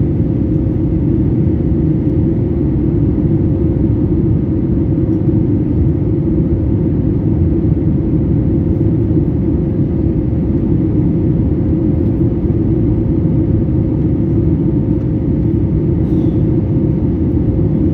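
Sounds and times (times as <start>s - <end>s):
airplane cabin roar: 0.0s - 17.9s.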